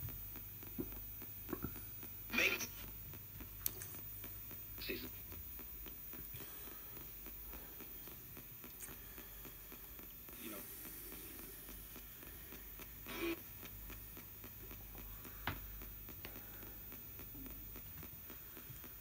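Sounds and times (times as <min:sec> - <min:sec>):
radio static hiss and hum: 0:00.0 - 0:19.0
rapid ticking: 0:02.0 - 0:19.0.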